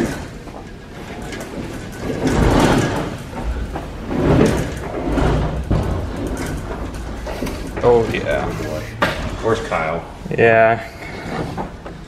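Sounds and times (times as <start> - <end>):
metal cabinets scraping and sliding: 0.0 - 12.0
low rumble: 2.3 - 10.2.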